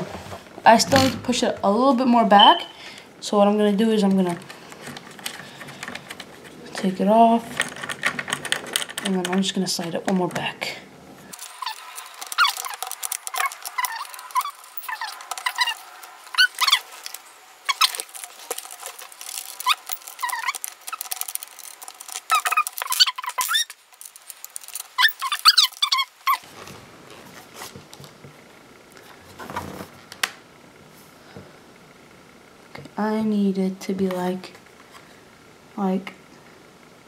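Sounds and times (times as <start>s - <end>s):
handling rustle: 11.2s - 28.4s.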